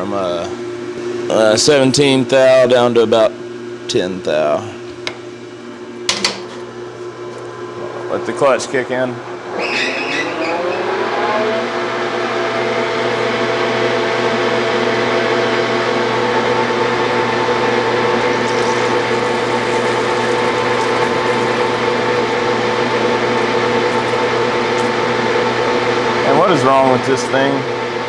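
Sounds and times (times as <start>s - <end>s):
metal lathe whining: 17.6s - 26.4s.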